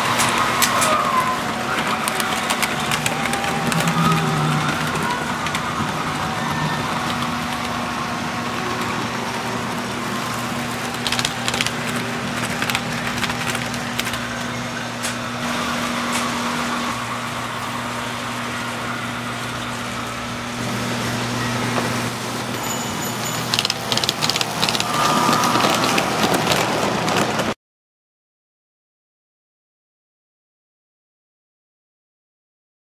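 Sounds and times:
wheels clicking over track: 0.0 - 15.2, 21.7 - 27.6
toy train electric hum: 0.0 - 27.6.

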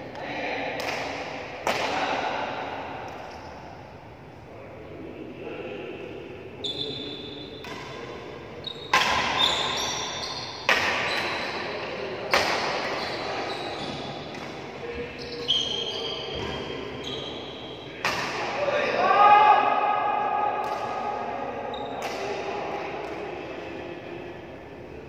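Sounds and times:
rackets hitting shuttlecock: 0.8 - 2.1, 7.6 - 8.3, 8.9 - 13.0, 13.9 - 14.8, 18.0 - 18.6, 20.6 - 21.1, 22.0 - 23.3
shoes squeaking on court: 8.6 - 11.6, 12.9 - 14.5, 15.1 - 17.7.

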